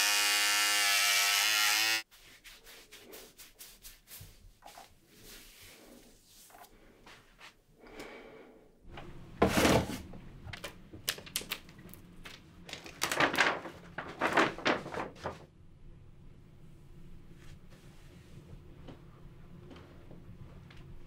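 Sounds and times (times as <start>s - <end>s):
paper rustling: 9.4s - 15.5s
packing rustling: 11.1s - 15.4s.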